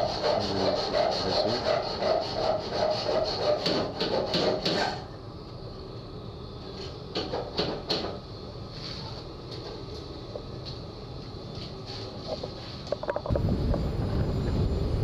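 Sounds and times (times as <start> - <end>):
hand scraping strokes: 0.0 - 5.0
low machinery hum: 0.0 - 15.0.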